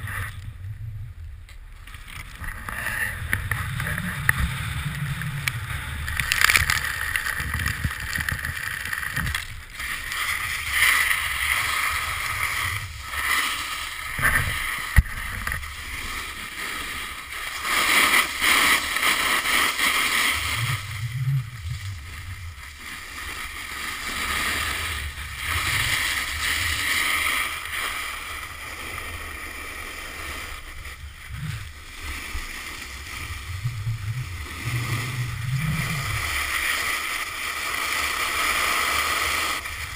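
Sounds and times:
snowboard scraping on snow: 0:02.0 - 0:39.9
wind buffeting microphone: 0:02.4 - 0:09.7.

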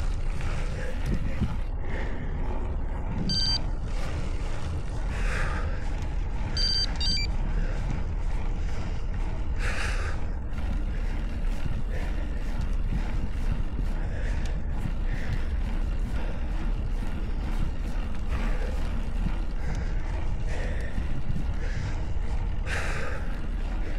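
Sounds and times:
short high electronic beeps: 0:03.3 - 0:03.6, 0:06.6 - 0:07.3.

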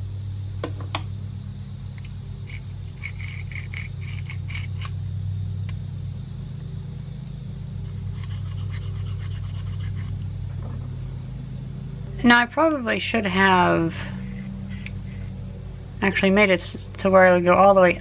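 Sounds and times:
steady low hum: 0:00.0 - 0:18.0
dial indicator clicks and scraping: 0:14.2 - 0:15.3.

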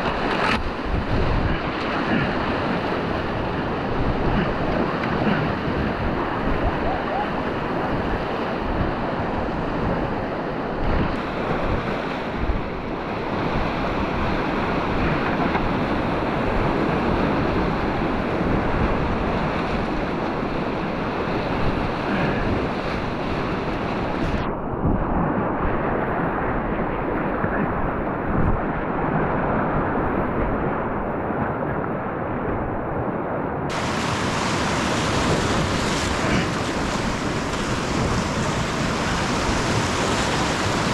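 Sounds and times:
whitewater rapids rushing: 0:33.7 - 0:40.9.

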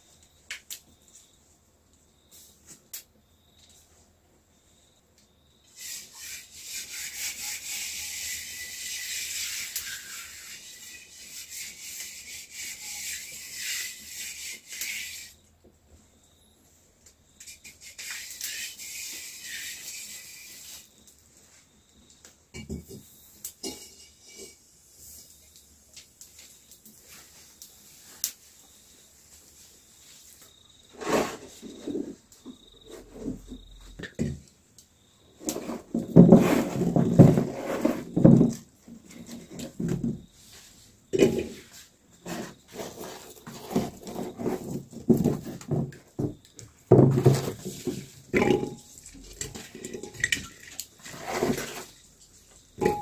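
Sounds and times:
cricket trilling: 0:03.2 - 0:15.5, 0:16.1 - 0:25.7, 0:26.4 - 0:53.0
sizzling in a metal pot: 0:05.7 - 0:15.4, 0:22.5 - 0:27.2, 0:52.7 - 0:53.0
potatoes clattering in plastic basin: 0:35.5 - 0:38.7, 0:42.3 - 0:52.0, 0:52.8 - 0:53.0.

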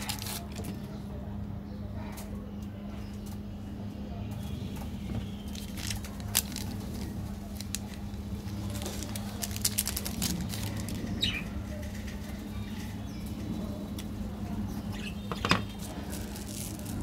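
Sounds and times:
plastic wrapper crinkling: 0:00.0 - 0:00.8, 0:05.5 - 0:11.3, 0:15.7 - 0:17.0
steady low hum: 0:00.0 - 0:17.0.

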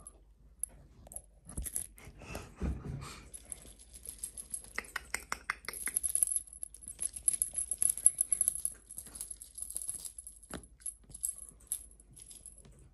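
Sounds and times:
cat toy rattling and crinkling: 0:03.2 - 0:05.0, 0:05.9 - 0:12.9.

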